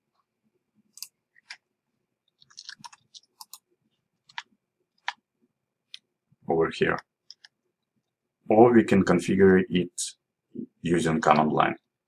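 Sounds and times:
keyboard and mouse clicking: 2.3 - 5.2, 6.9 - 7.6.

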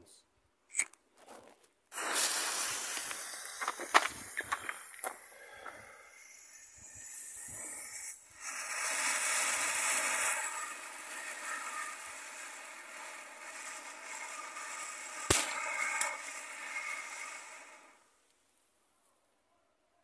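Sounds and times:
sharp cracks: 1.9 - 5.2, 8.9 - 17.8
firework fountain hissing: 1.9 - 18.8.

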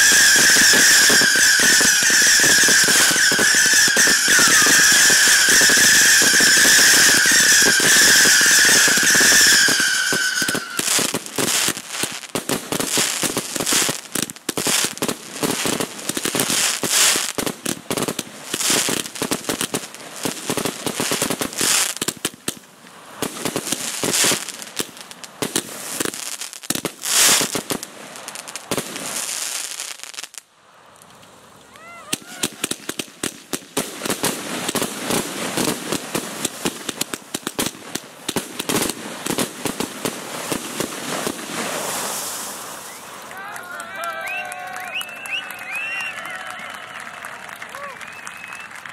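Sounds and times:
firework shell bursts: 0.0 - 11.2
whistling firework: 0.0 - 22.2, 23.2 - 30.4, 31.8 - 48.9
firework crackling: 0.0 - 48.9.

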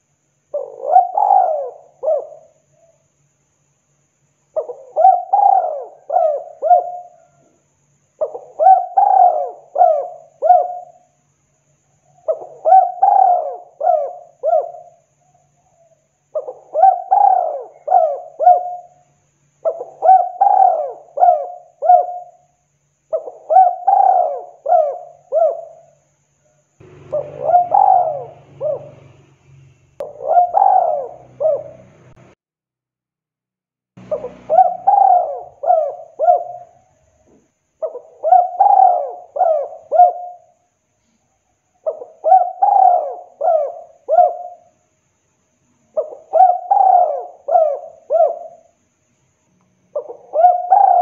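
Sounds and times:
dove cooing: 0.5 - 3.0, 4.6 - 7.6, 8.2 - 11.1, 12.1 - 19.0, 19.6 - 22.5, 23.1 - 26.0, 26.8 - 29.2, 30.0 - 32.2, 34.0 - 37.2, 37.8 - 40.6, 41.8 - 44.7, 45.9 - 48.7, 49.9 - 51.0.

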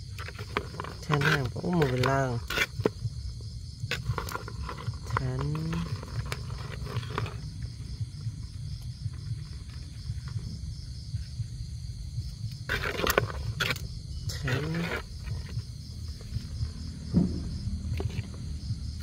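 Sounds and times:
night insects chirping: 0.0 - 19.0
low rumbling background noise: 2.0 - 19.0
rustling: 3.9 - 10.5, 12.2 - 18.6.

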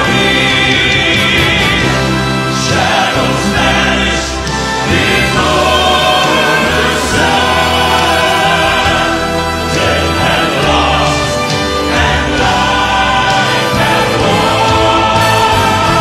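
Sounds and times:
drums: 0.0 - 16.0
guitar: 0.0 - 16.0
male vocal quartet singing: 0.0 - 16.0
piano: 0.0 - 16.0.

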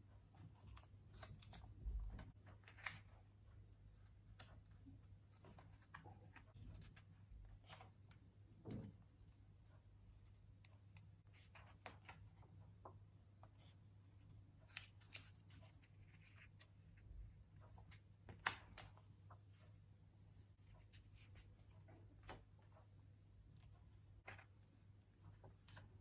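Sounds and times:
book pages turning: 0.3 - 3.3, 10.7 - 13.8, 14.4 - 19.8, 23.5 - 26.0.

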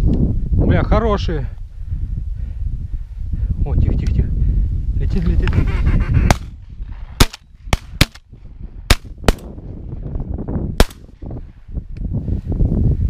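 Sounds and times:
shotgun shots: 7.2 - 8.2, 8.9 - 9.5, 10.8 - 11.0.

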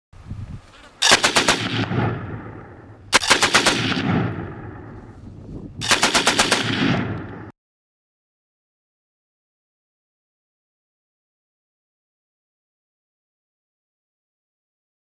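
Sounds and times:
automatic gunfire bursts: 1.0 - 4.3, 5.8 - 7.5
rumbling echo: 1.1 - 7.5.

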